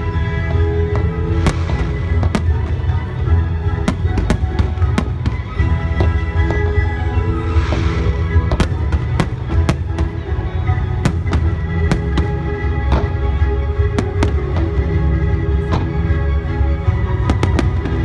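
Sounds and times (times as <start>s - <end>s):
music with sustained notes: 0.0s - 18.0s
fireworks bangs: 1.0s - 10.3s, 11.0s - 13.2s
fireworks crackling hiss: 1.1s - 3.2s, 6.1s - 10.2s.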